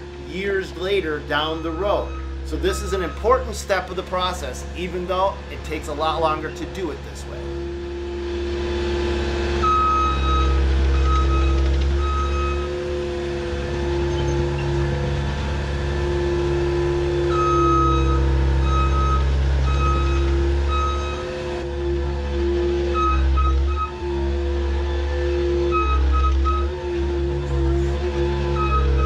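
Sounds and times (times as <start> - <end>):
diesel engine running: 0.0 - 29.0
reverse alarm beeping: 0.4 - 6.7, 9.6 - 13.0, 17.0 - 21.7, 22.6 - 27.2, 28.4 - 29.0.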